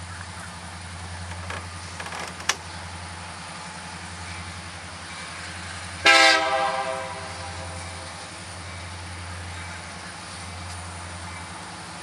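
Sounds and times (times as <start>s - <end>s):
locomotive air horn blast: 6.0s - 7.8s.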